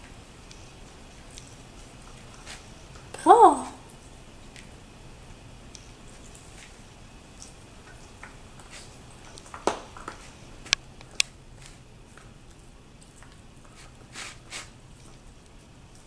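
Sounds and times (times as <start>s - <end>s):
puppy licking and sniffing: 0.0s - 3.2s, 3.9s - 16.0s.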